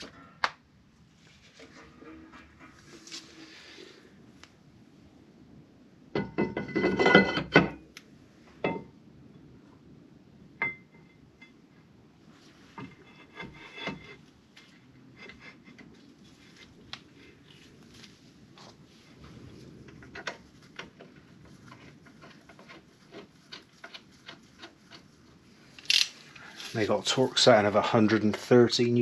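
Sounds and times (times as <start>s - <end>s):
clicks and rubbing of parts: 19.8s - 26.9s
brake disc scraping on hub: 20.0s - 25.1s.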